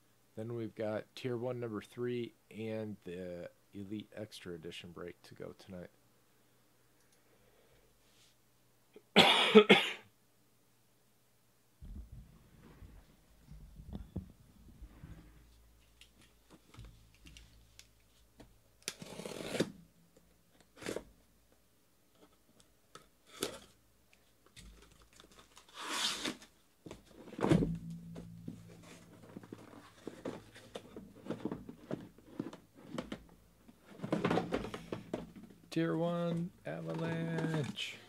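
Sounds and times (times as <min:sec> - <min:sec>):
packing tape ripping: 0:18.8 - 0:19.8, 0:24.6 - 0:26.6
cardboard clicks and rustles: 0:24.4 - 0:35.7, 0:36.3 - 0:37.9.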